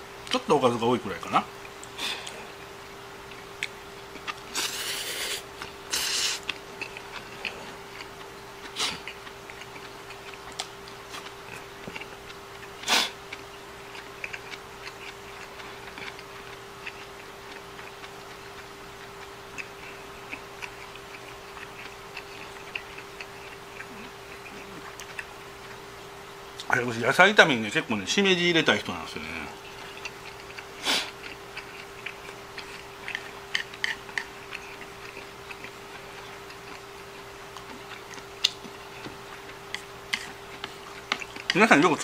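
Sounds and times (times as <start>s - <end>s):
steady low hum: 0.0s - 42.0s
quiet chewing: 1.4s - 26.7s, 29.1s - 42.0s
chopsticks ticking on dishes: 39.7s - 42.0s.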